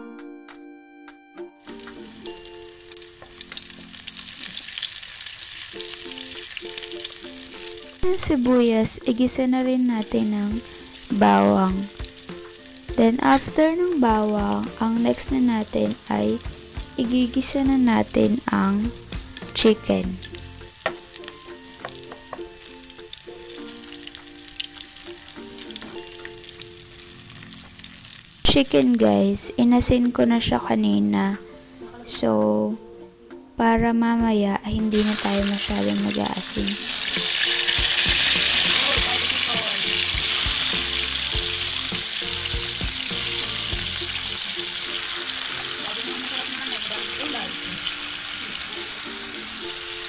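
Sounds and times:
soft background music: 0.0 - 50.0
onion and garlic sizzling in oil: 1.6 - 31.9, 34.8 - 50.0
wooden spatula tapping and scraping: 20.8 - 22.5.

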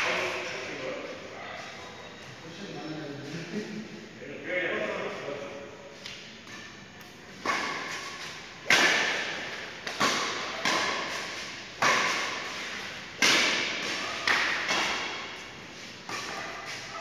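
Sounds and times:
racket hitting shuttlecock: 6.0 - 17.0.

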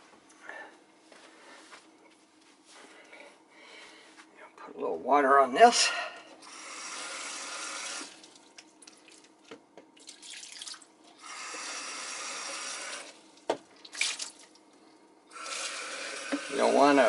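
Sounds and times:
faucet running into plastic cup: 6.5 - 8.4, 10.0 - 13.2, 15.3 - 16.8
water splashing on ice: 13.8 - 14.6.

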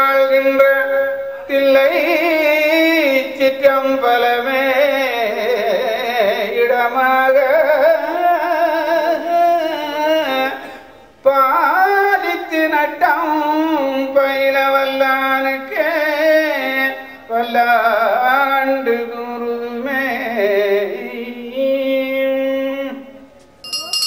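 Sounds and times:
person singing ornamented melody: 23.6 - 24.0.

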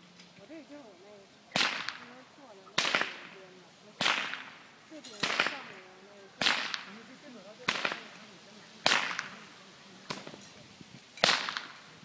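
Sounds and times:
chain whip cracking: 0.8 - 2.2, 2.8 - 8.2, 8.8 - 12.0.

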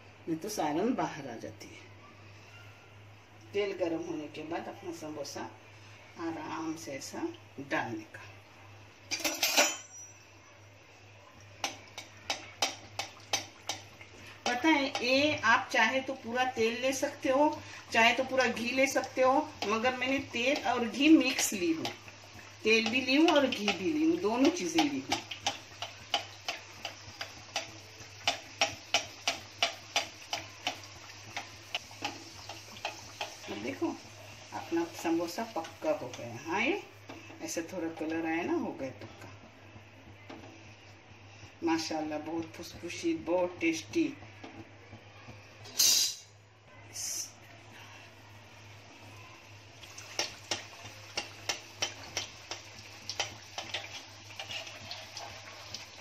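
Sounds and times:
deep-frying sizzle with pops: 9.9 - 56.0
spoon splashing oil: 18.4 - 36.2, 49.8 - 56.0.

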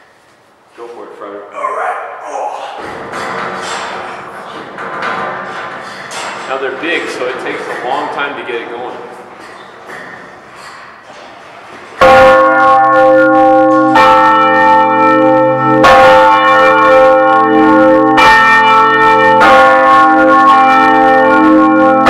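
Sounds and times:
church bells ringing: 12.0 - 22.0.

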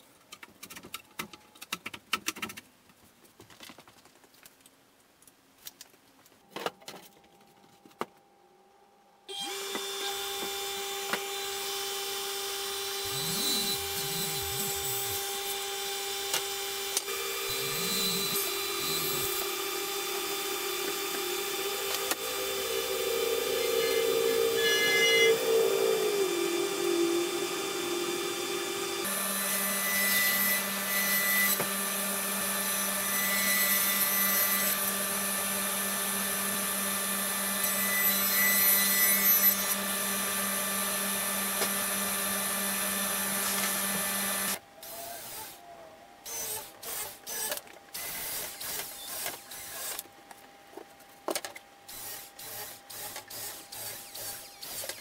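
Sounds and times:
table saw humming: 9.3 - 44.6
machine tone falling in pitch: 22.2 - 28.4.

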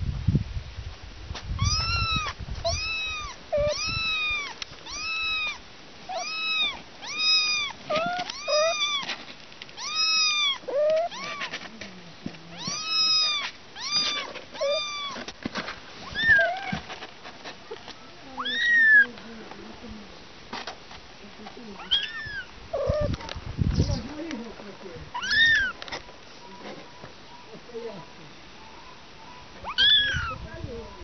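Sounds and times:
kittens mewing: 1.6 - 9.2, 9.8 - 11.8, 12.5 - 15.3, 16.0 - 16.8, 17.6 - 19.1, 21.8 - 23.3, 25.1 - 25.8, 28.9 - 31.0.

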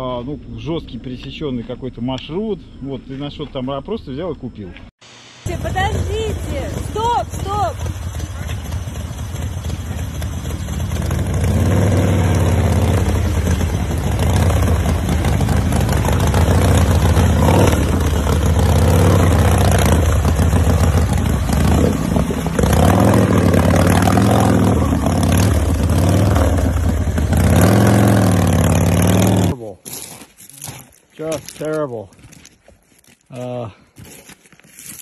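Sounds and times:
motorcycle engine revving: 5.4 - 29.6.

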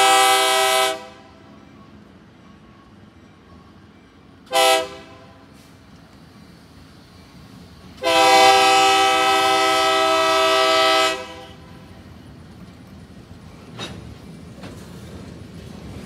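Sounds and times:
locomotive air horn blast: 0.0 - 1.4, 4.5 - 5.8, 8.0 - 11.7
train rolling rumble: 0.0 - 16.0.

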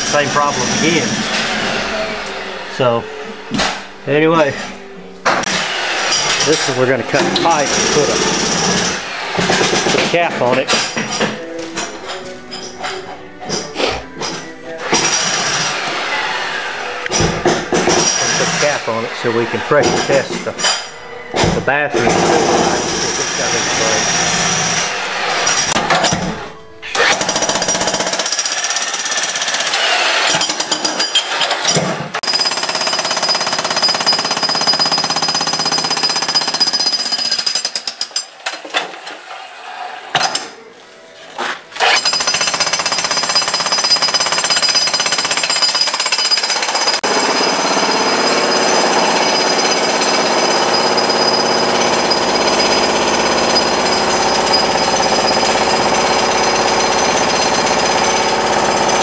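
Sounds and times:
jackhammer breaking concrete: 5.4 - 10.1, 22.0 - 26.2, 27.0 - 38.2, 41.8 - 59.0.

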